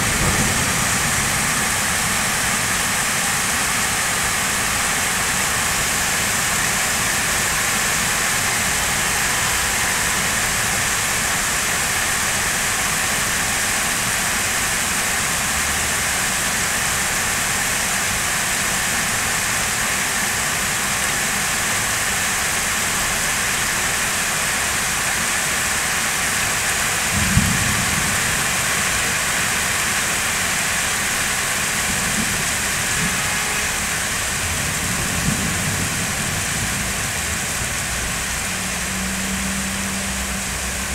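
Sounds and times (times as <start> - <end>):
low rumbles: 0.0 - 3.2
heavy rain: 0.0 - 40.9.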